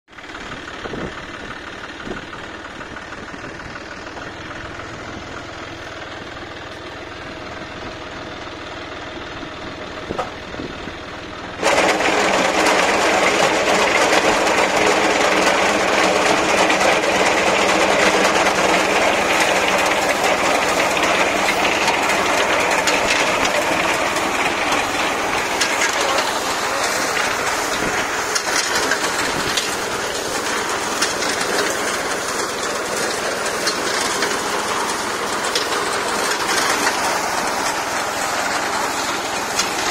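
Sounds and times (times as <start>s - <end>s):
tractor engine running: 0.1s - 39.9s
reaper cutting mechanism clattering: 11.6s - 39.9s.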